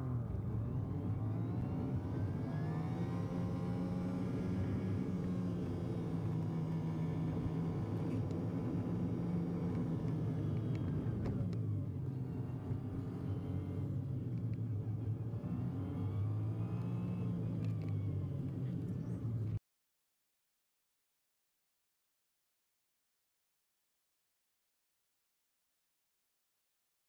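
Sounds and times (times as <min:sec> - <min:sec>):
road noise: 0:00.0 - 0:19.6.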